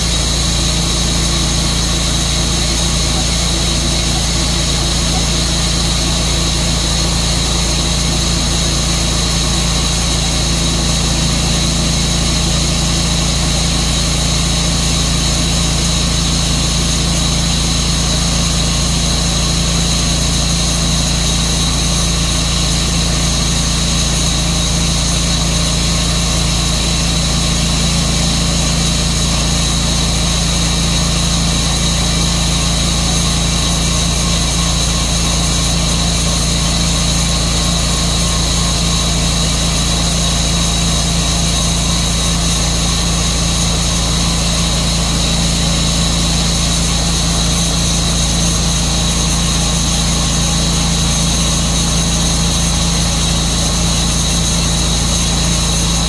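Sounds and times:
sawmill engine drone: 0:00.0 - 0:56.0.

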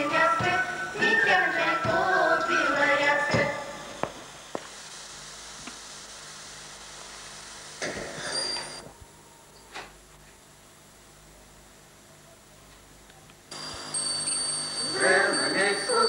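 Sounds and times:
voices chanting: 0:00.0 - 0:03.9, 0:14.8 - 0:16.0
steady hiss and hum: 0:00.0 - 0:16.0.

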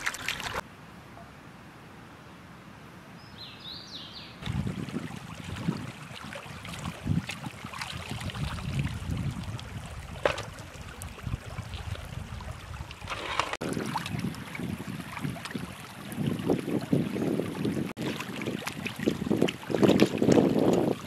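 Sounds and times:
hands washing food in water: 0:00.0 - 0:00.6
stream water running: 0:00.0 - 0:00.7, 0:04.4 - 0:21.0
wind rumbling on microphone: 0:04.4 - 0:21.0.

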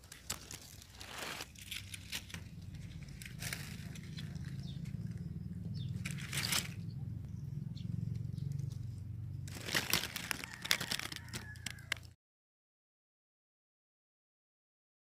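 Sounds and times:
dry leaves rustling: 0:00.0 - 0:05.2, 0:05.8 - 0:06.8, 0:08.5 - 0:12.1
low hum: 0:00.1 - 0:10.2.

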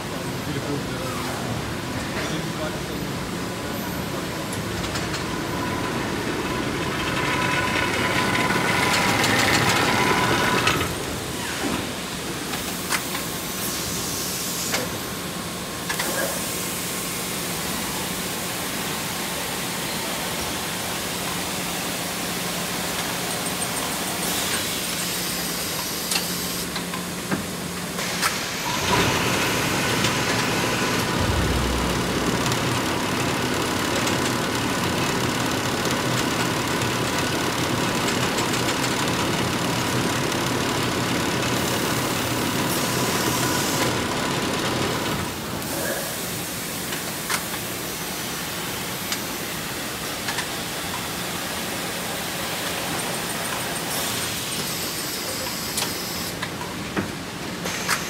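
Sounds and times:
machine hum: 0:29.9 - 0:35.0.

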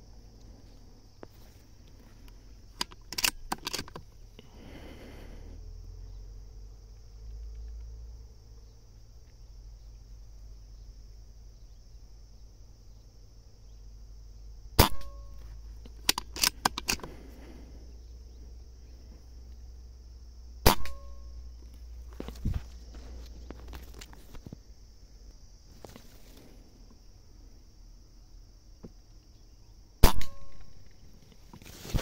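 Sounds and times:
cluster of clicks: 0:01.2 - 0:04.2, 0:06.8 - 0:08.0, 0:14.8 - 0:17.4
air rifle shots: 0:14.8 - 0:15.2, 0:20.6 - 0:21.2, 0:30.0 - 0:30.7.

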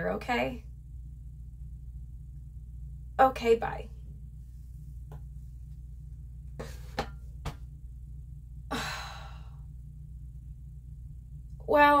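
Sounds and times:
steady low hum: 0:00.0 - 0:12.0
woman sighing: 0:08.7 - 0:09.6.

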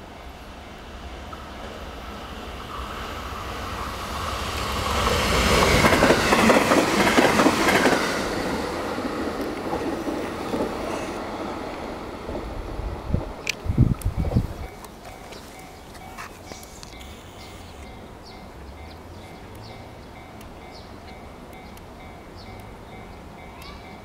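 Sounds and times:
electric train passing at speed: 0:00.0 - 0:24.0.

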